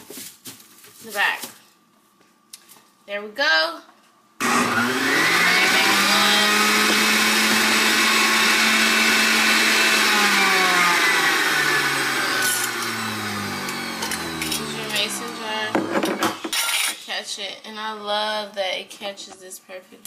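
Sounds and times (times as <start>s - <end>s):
juicer motor whining: 4.4s - 16.4s.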